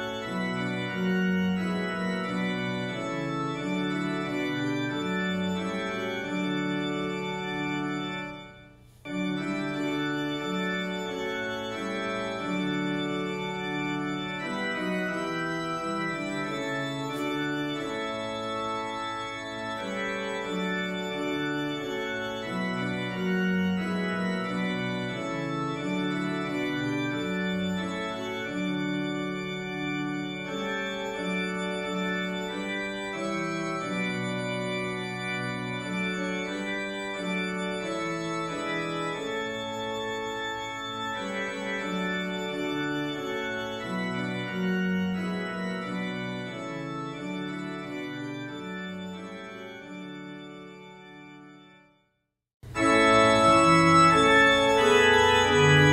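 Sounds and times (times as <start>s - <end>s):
organ playing slow chords: 0.0s - 51.9s, 52.6s - 55.9s.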